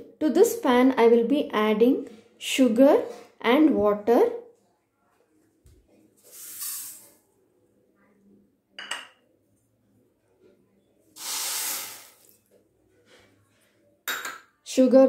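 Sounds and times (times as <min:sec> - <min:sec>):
sugar pouring into a pan: 0:06.3 - 0:07.2, 0:11.2 - 0:12.4
cup clinking against pan: 0:08.8 - 0:09.2.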